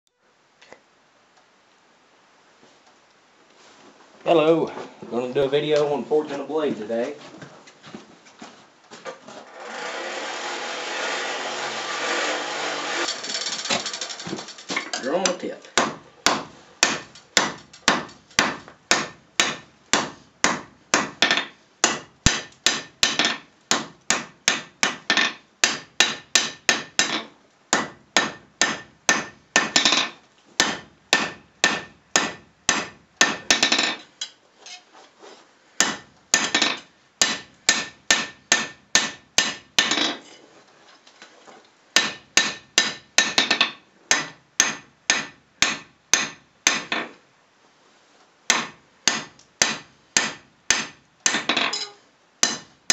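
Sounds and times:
hammer striking hot steel: 0:12.8 - 0:34.4, 0:35.8 - 0:40.2, 0:42.0 - 0:47.1, 0:48.5 - 0:52.9.

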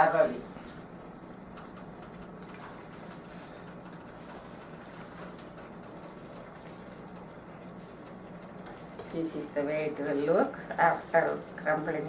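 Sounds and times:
low steady hum: 0:00.0 - 0:12.0
onion sizzling in a pan: 0:02.6 - 0:12.0.

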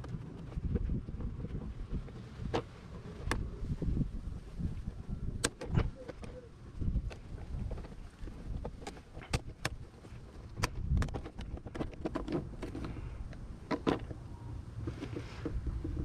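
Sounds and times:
plastic panel rustling and knocking: 0:07.0 - 0:14.2.

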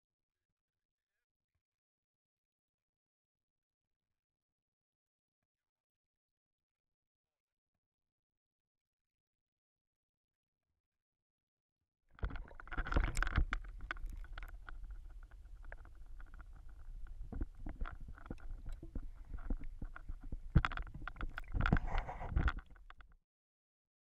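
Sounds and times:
clicks and knocks on camera housing: 0:12.2 - 0:23.0
muffled underwater water rumble: 0:12.2 - 0:23.0.

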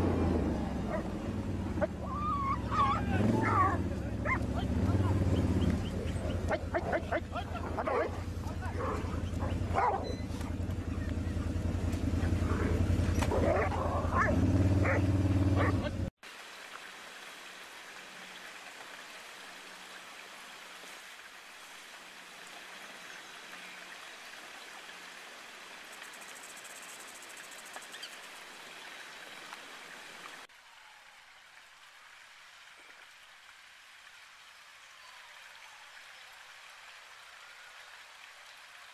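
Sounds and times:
dogs barking and snarling: 0:00.0 - 0:16.1
car engine running: 0:03.1 - 0:16.1.

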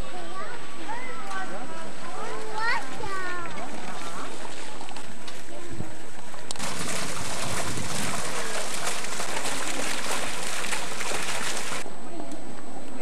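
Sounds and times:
fountain water splashing: 0:01.9 - 0:11.8.

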